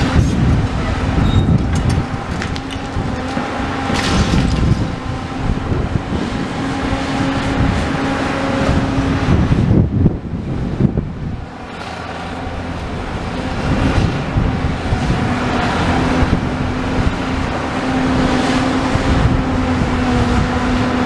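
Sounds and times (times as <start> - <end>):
excavator engine and hydraulics hum: 0.0 - 21.0
loud rumble: 0.0 - 21.0
masonry crashing and clattering: 1.5 - 5.0.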